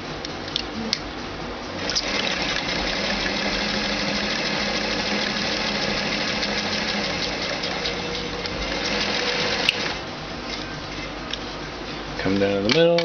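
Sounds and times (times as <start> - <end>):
sewing machine running: 1.8 - 10.0.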